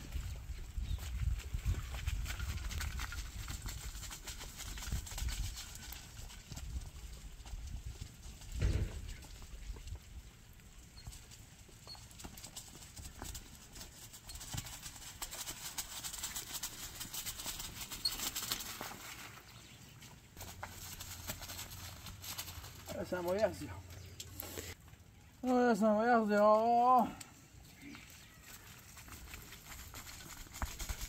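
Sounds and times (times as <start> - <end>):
grit crunching: 0.9 - 24.8, 27.7 - 31.0
light crackling: 20.4 - 25.6.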